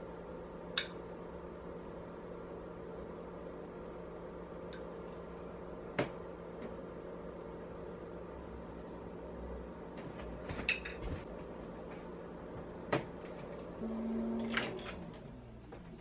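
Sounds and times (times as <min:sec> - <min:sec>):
oven door opening with hum: 0:12.9 - 0:16.0.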